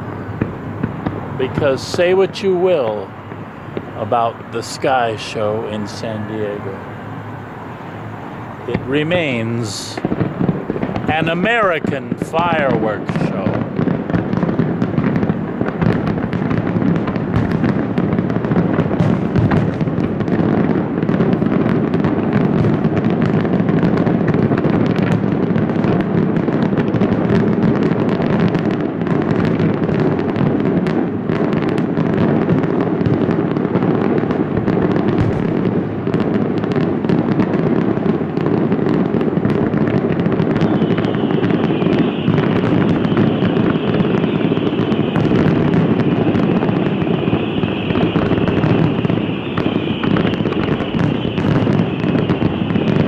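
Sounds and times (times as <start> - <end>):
high steady hiss: 0.0 - 13.7
fireworks bursting: 0.0 - 53.0.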